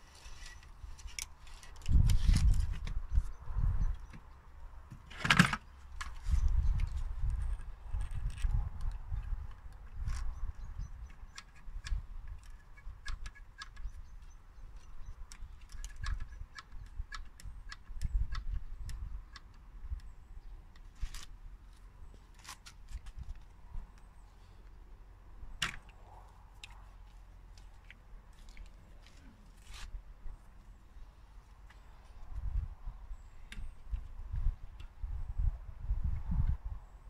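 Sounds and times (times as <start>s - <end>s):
wind rumble on microphone: 1.6s - 4.2s, 6.0s - 21.2s, 32.1s - 37.0s.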